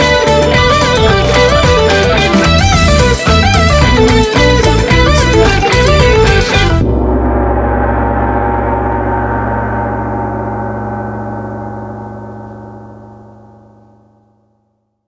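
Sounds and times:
electric guitar and bass chord ringing: 0.0s - 14.4s
gong-like shimmer: 6.8s - 14.5s.

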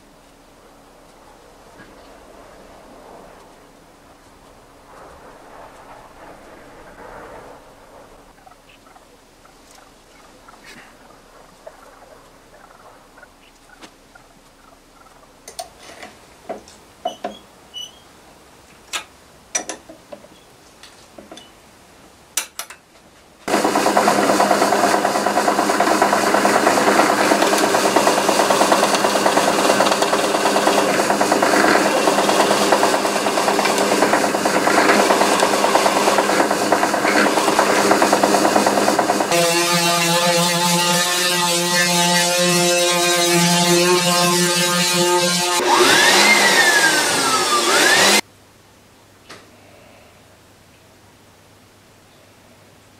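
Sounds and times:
drill press boring wood: 23.5s - 48.2s.

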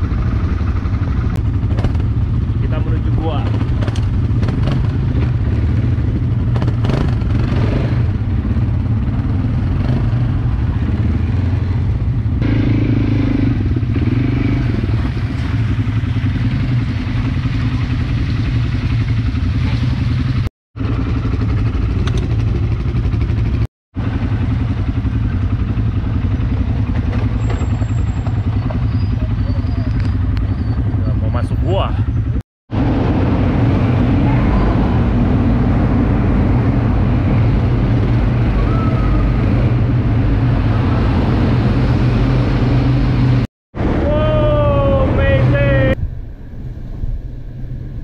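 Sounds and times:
quad bike engine running: 0.0s - 43.4s.

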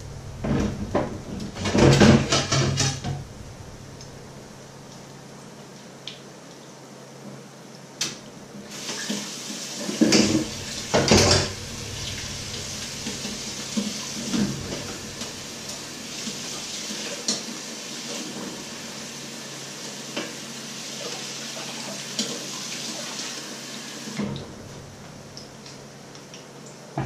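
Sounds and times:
metal pots clattering: 0.4s - 3.3s, 9.9s - 16.6s
water running into sink: 8.7s - 25.9s.

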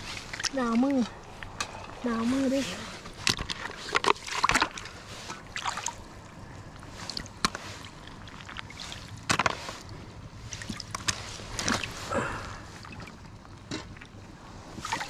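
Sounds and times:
water sloshing: 0.0s - 15.0s.

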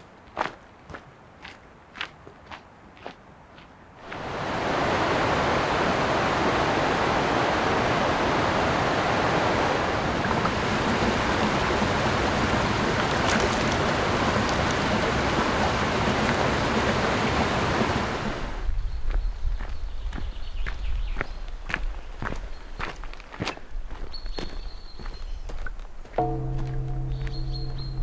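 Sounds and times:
stream water rushing: 4.0s - 18.6s.

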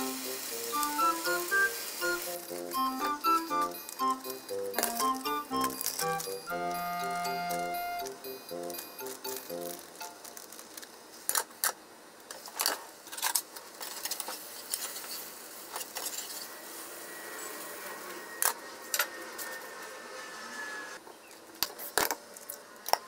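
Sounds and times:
packaging crackling: 0.0s - 6.6s, 9.0s - 15.1s.

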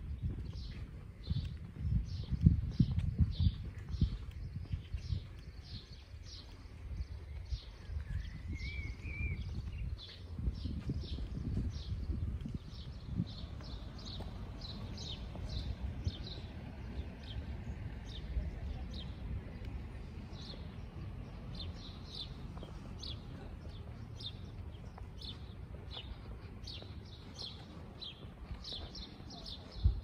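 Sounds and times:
small birds chirping: 0.0s - 30.0s.

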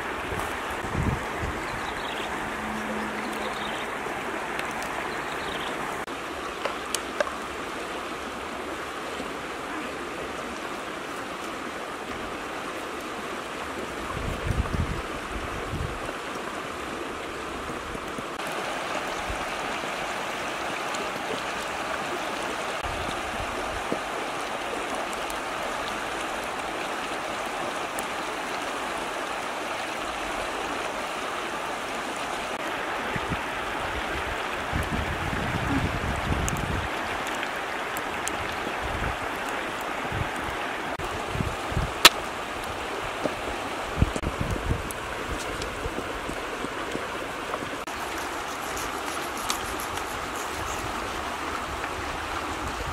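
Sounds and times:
river flowing: 0.0s - 52.9s.

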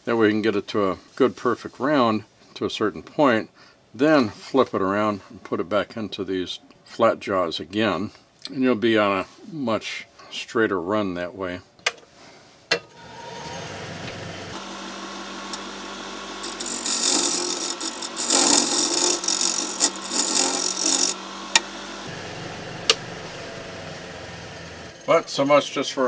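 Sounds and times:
wood lathe spinning: 12.9s - 25.6s
turning tool scraping wood: 14.6s - 22.1s.

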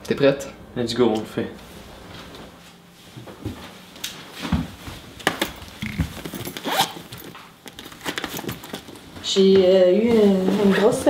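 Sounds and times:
bag rustling: 5.4s - 9.2s
zipper strokes: 5.8s - 7.2s.

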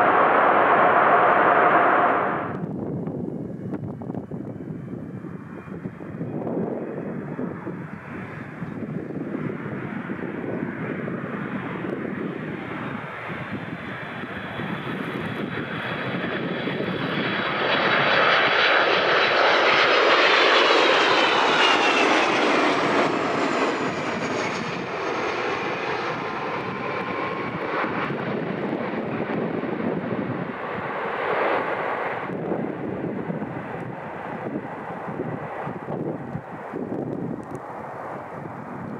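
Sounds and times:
engine whine sliding down: 0.0s - 2.8s
jet engines of landing airliner: 0.0s - 38.9s.

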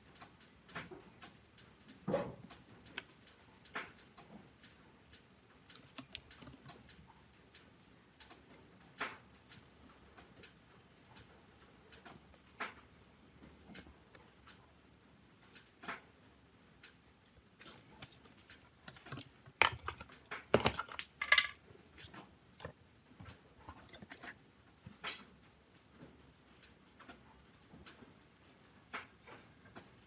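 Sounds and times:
small tools clicking and tapping: 2.4s - 12.9s, 17.6s - 24.3s.

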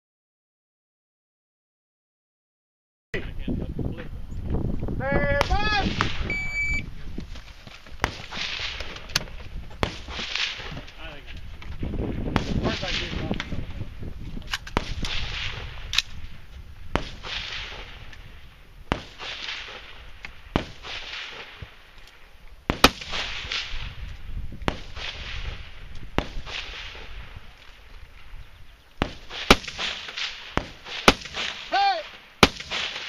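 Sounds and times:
wind rumbling on microphone: 3.2s - 19.2s, 21.6s - 29.2s.

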